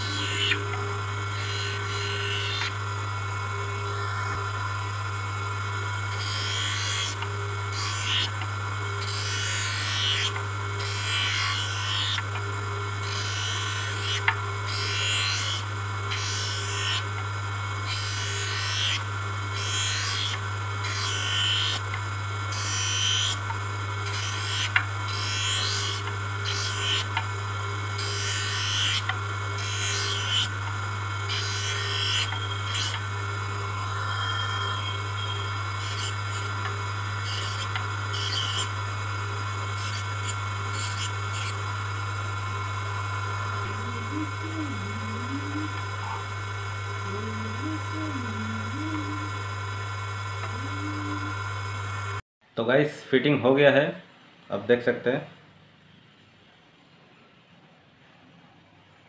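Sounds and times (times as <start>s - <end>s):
lens edger motor humming: 0.0s - 52.2s
grinding wheel rasping on plastic lens: 17.8s - 27.2s, 28.0s - 38.8s, 39.8s - 41.6s.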